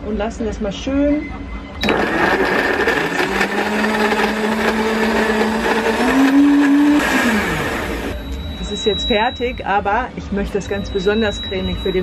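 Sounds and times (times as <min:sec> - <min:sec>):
blender motor running: 0:01.8 - 0:08.2.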